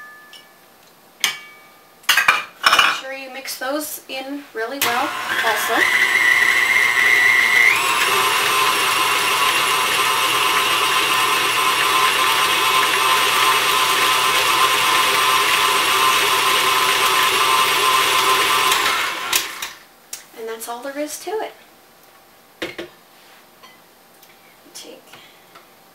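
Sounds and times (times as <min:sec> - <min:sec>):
stand mixer motor whine: 0:04.8 - 0:19.8.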